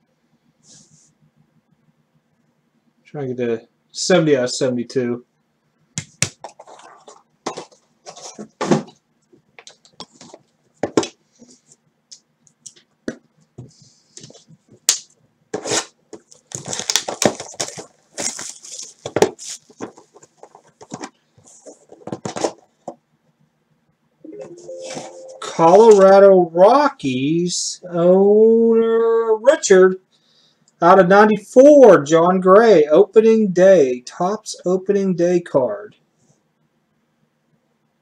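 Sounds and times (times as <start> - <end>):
crinkling and tearing: 14.9 - 21.1
cardboard boxes rustling and tapping: 16.2 - 23.0.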